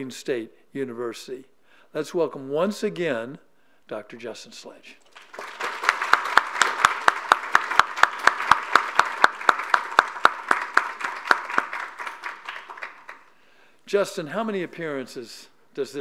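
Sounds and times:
audience applauding: 0:05.0 - 0:13.3
close hands clapping steadily: 0:05.0 - 0:13.4.

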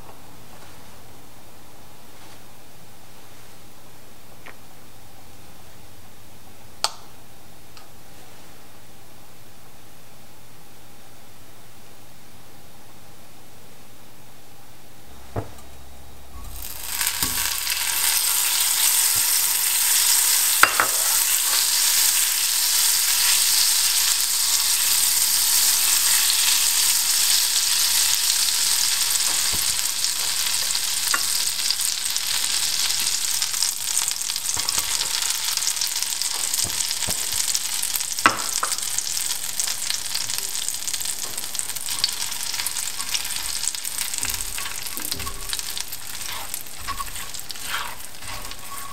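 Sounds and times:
butter sizzling in skillet: 0:16.4 - 0:48.9.

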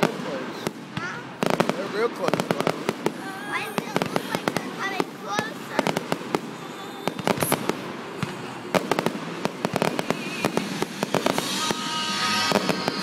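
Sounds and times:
fireworks bangs and crackling: 0:00.0 - 0:13.0
high falling whistle: 0:09.8 - 0:13.0.

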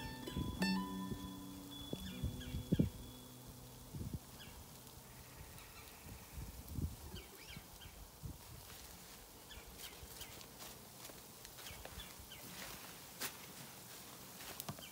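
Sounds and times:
small birds chirping: 0:00.0 - 0:08.1, 0:09.4 - 0:10.5, 0:11.6 - 0:12.7.

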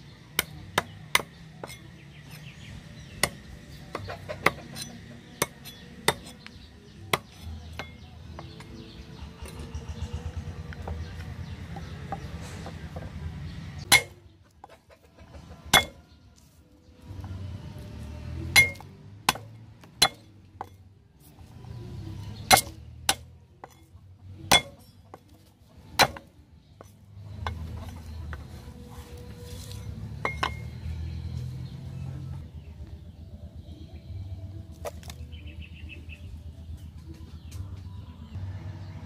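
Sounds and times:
cleaver striking wooden chopping block: 0:13.8 - 0:14.2, 0:15.7 - 0:16.0, 0:18.5 - 0:20.8, 0:22.4 - 0:23.8, 0:24.5 - 0:25.2, 0:25.9 - 0:27.7.

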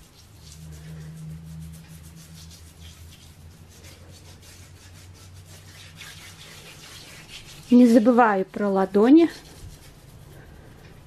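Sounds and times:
hands rubbing scrub on skin: 0:00.0 - 0:11.0
low steady hum: 0:00.0 - 0:11.0.

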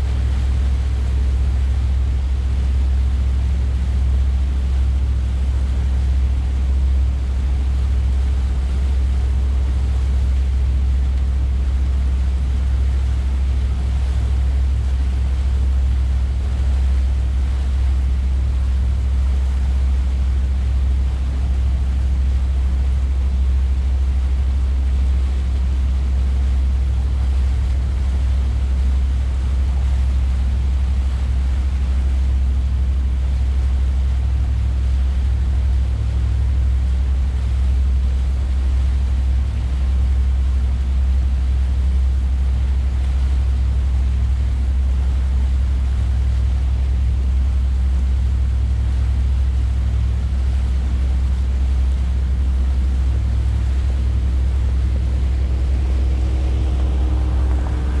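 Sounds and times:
boat engine rumble: 0:00.0 - 0:58.0
water rushing past hull: 0:00.0 - 0:58.0
wind rushing: 0:53.6 - 0:58.0.

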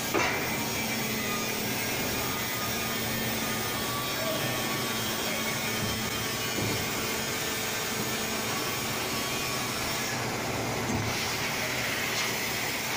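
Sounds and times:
molding machine whirring: 0:00.0 - 0:12.9
faint machine knocks: 0:05.8 - 0:07.0.

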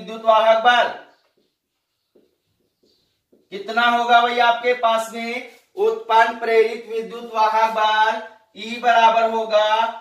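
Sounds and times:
marker pen writing on whiteboard: 0:00.4 - 0:04.2.

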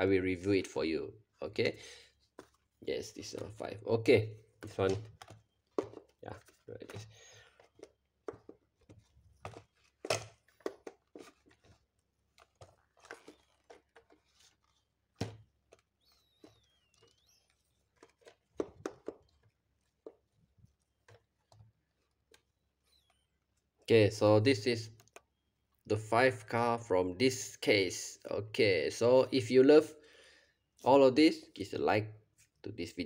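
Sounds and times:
card and plastic rustling: 0:02.2 - 0:03.7, 0:04.6 - 0:23.8
toy packaging tapping on mat: 0:04.6 - 0:06.2, 0:07.7 - 0:11.6, 0:18.0 - 0:19.4.

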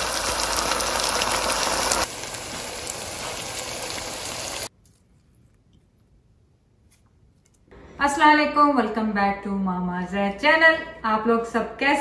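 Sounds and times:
sauce sizzling in a frying pan: 0:00.0 - 0:04.7.

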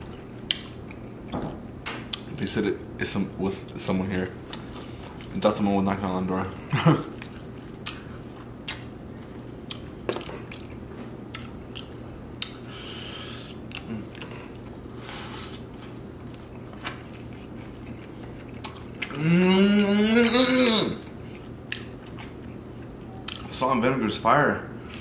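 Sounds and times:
chewing with wet mouth clicks: 0:00.0 - 0:01.0, 0:04.2 - 0:05.4, 0:07.1 - 0:12.6, 0:13.4 - 0:14.9, 0:15.6 - 0:20.4, 0:21.3 - 0:23.5
low steady hum: 0:00.0 - 0:25.0.

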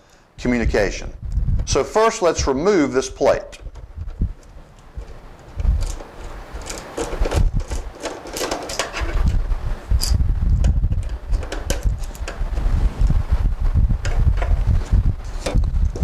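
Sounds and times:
screwdriver clicks and scrapes: 0:03.5 - 0:09.4, 0:10.0 - 0:12.4, 0:15.2 - 0:16.0.

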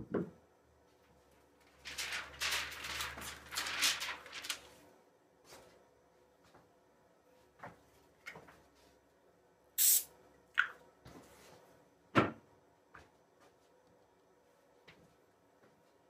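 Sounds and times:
objects knocking on workbench: 0:12.1 - 0:12.4.

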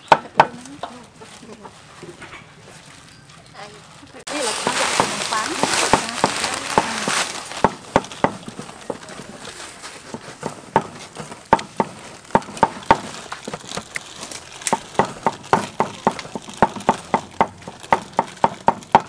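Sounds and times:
sharp knocks: 0:05.0 - 0:09.0, 0:10.1 - 0:13.8.

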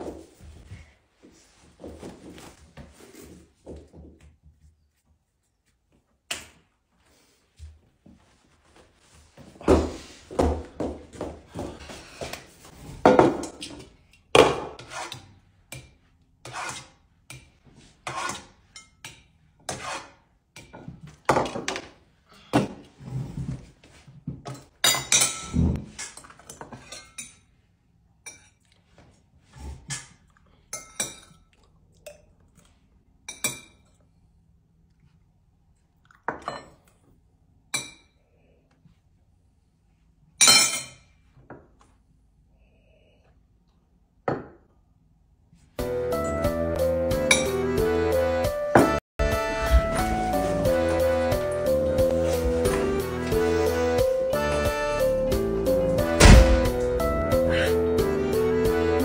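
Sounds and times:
tableware knocking and clinking: 0:13.0 - 0:13.8, 0:24.5 - 0:27.4, 0:40.4 - 0:41.1, 0:47.3 - 0:47.5.

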